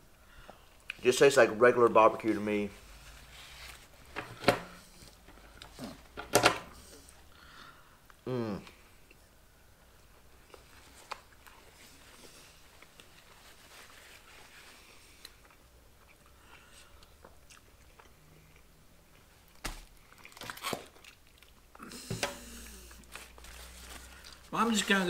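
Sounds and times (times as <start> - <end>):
people chewing: 14.8 - 24.5.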